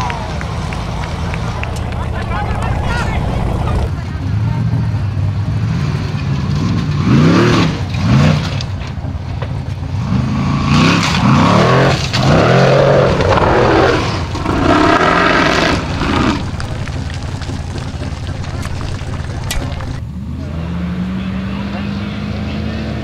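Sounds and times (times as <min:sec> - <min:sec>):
buggy engine revving hard: 0:00.6 - 0:08.7, 0:09.9 - 0:23.0.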